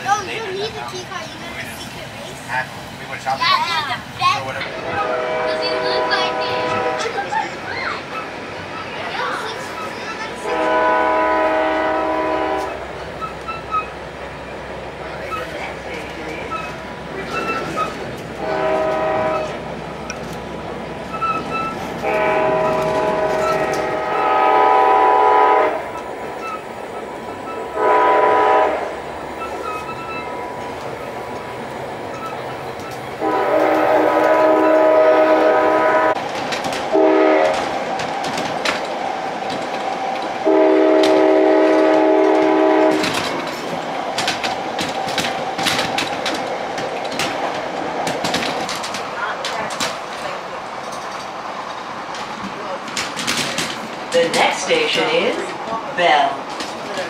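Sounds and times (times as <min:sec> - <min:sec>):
train running noise: 0:00.0 - 0:57.0
train air horn blasts: 0:04.8 - 0:07.2, 0:10.4 - 0:12.8, 0:18.4 - 0:19.6, 0:22.0 - 0:26.6, 0:27.5 - 0:29.0, 0:33.2 - 0:36.2, 0:36.9 - 0:37.7, 0:40.4 - 0:43.2
wheels clicking over rail joints: 0:12.5 - 0:24.7, 0:25.8 - 0:28.6, 0:29.3 - 0:57.0.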